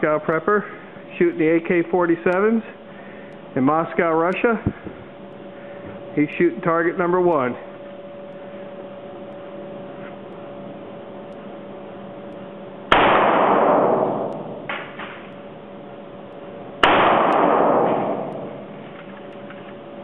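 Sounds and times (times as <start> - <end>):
steady hum: 0.0 - 20.0
rifle shot echoing indoors: 12.9 - 15.2, 16.8 - 18.7.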